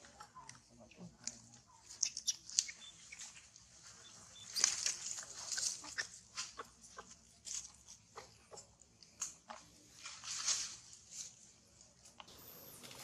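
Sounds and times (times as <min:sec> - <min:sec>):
faint high peeps: 0:01.8 - 0:03.3, 0:04.0 - 0:04.8
rustling in dry leaves: 0:01.8 - 0:08.1, 0:09.7 - 0:13.0.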